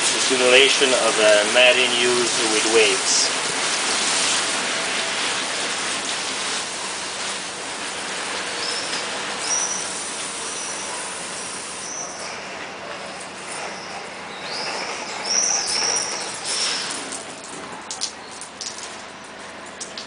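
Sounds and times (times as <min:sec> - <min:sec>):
hose spray hissing: 0:00.0 - 0:12.4
water running and dripping: 0:00.0 - 0:20.0.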